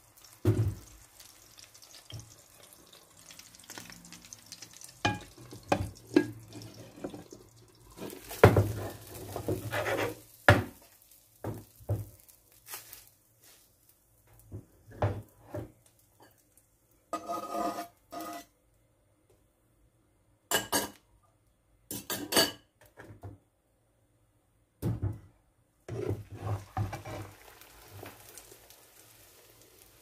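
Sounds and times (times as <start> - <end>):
spatula scraping frying pan: 5.1 - 10.4, 17.1 - 18.5, 25.9 - 28.0.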